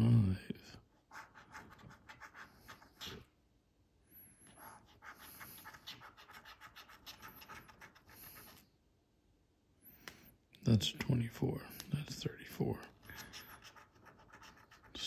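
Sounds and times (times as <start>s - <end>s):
coin scratching lottery ticket: 4.5s - 8.6s, 13.1s - 15.0s.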